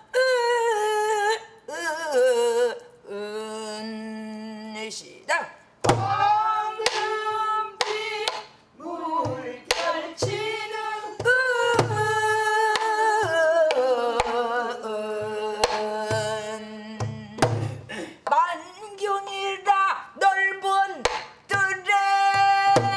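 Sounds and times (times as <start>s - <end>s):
deep drum thumps: 5.8s - 6.3s
woman singing folk song: 6.0s - 18.5s, 19.4s - 22.9s.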